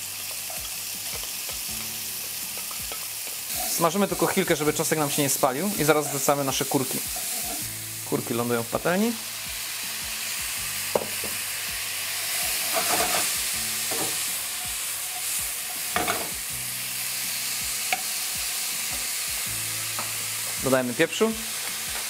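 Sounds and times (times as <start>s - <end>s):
food sizzling in a frying pan: 0.0s - 22.0s
wooden spoon knocking on pan: 10.9s - 11.4s, 16.0s - 16.4s.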